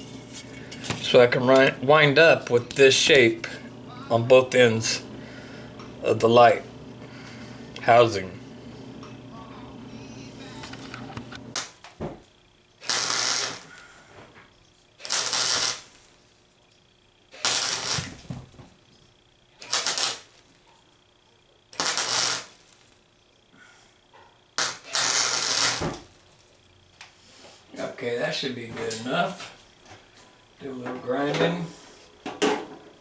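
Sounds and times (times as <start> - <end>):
welder crackling: 11.2 - 12.0, 12.7 - 13.9, 14.9 - 16.4, 17.3 - 18.4, 19.6 - 20.6, 21.7 - 23.1, 24.6 - 26.4.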